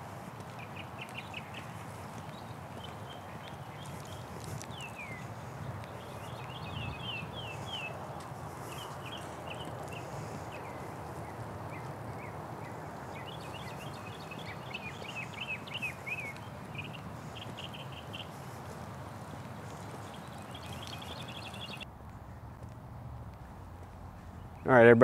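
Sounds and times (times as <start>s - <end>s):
outdoor background noise: 0.0s - 25.0s
small birds chirping: 0.0s - 25.0s.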